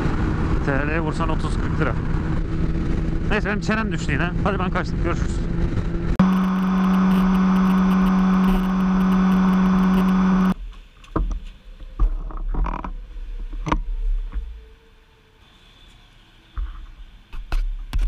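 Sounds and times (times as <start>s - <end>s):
motorcycle engine cruising: 0.0s - 10.6s.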